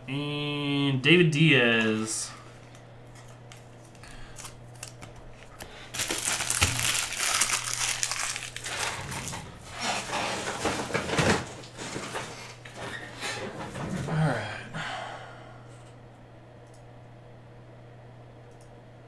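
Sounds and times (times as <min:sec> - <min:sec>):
foil wrappers crinkling: 0:02.6 - 0:11.0.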